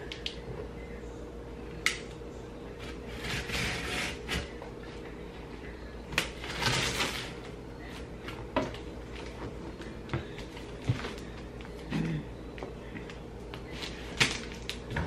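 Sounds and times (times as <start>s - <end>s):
box cutter slicing cardboard: 3.1s - 4.5s.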